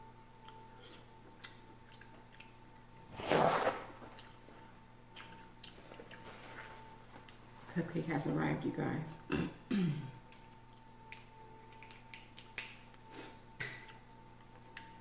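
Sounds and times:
faint eating clicks: 0.4 - 3.1.

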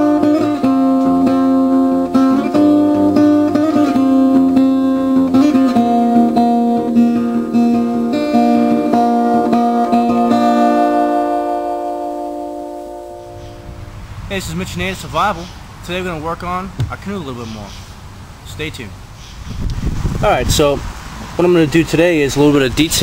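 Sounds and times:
acoustic guitar music: 0.0 - 14.0.

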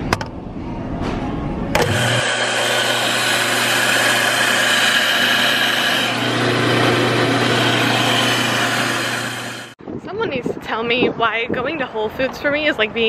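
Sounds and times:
coffee grinder grinding beans: 1.8 - 9.8.

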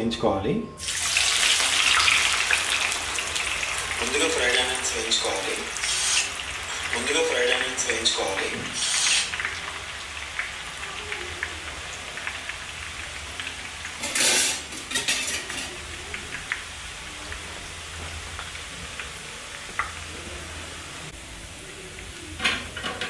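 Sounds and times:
onions sizzling in hot oil: 0.8 - 23.0
loud hiss: 0.9 - 9.6
small crackling pops: 18.3 - 20.0.

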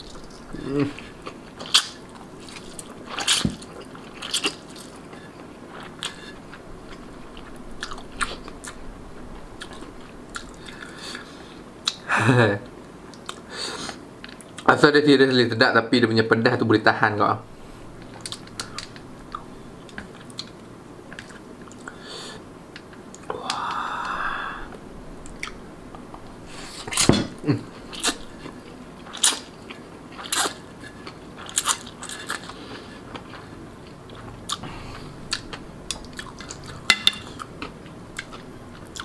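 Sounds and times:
wet chewing and mouth clicks: 35.3 - 39.0.

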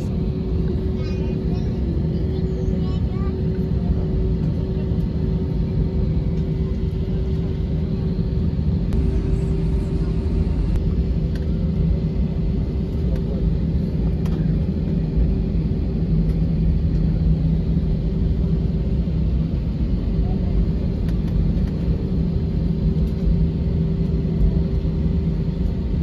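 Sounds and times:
airliner cabin rumble: 0.0 - 26.0.

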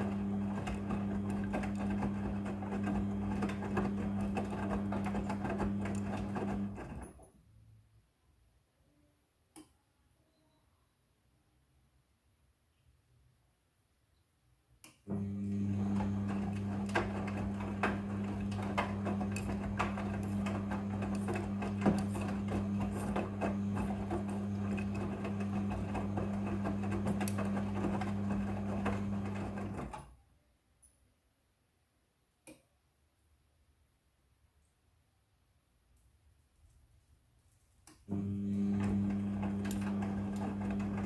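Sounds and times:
washing machine drum motor hum: 0.0 - 7.0, 15.1 - 30.0, 38.1 - 41.0.

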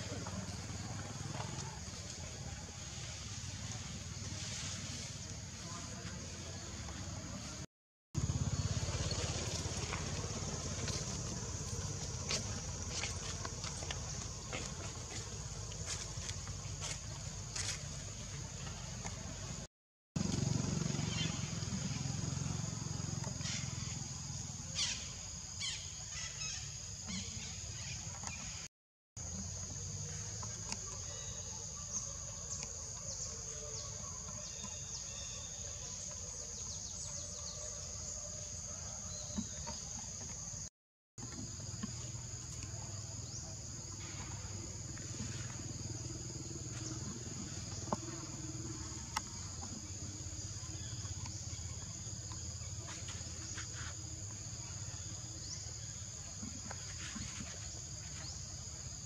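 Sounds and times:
insects chorus: 0.0 - 59.0.

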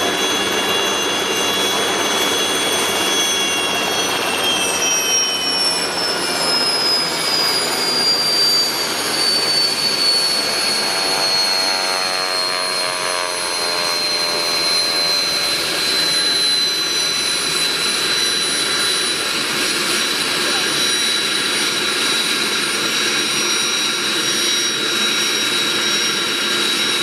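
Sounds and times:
helicopter rotors rushing: 0.0 - 27.0
turbine whine falling in pitch: 0.0 - 27.0.

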